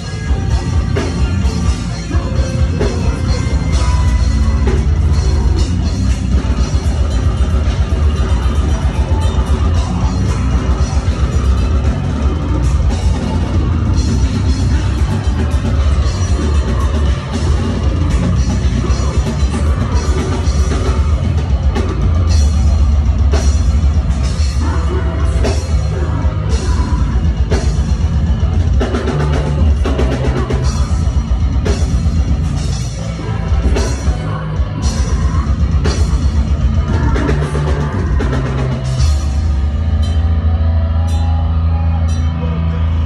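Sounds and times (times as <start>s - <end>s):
distorted guitars: 0.0s - 43.0s
heavy bass: 0.0s - 43.0s.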